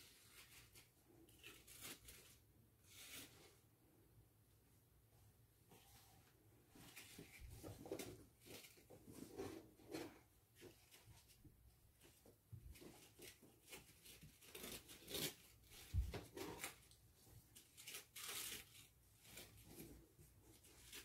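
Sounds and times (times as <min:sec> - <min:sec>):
rustling and scraping on cardboard: 0:05.6 - 0:21.0.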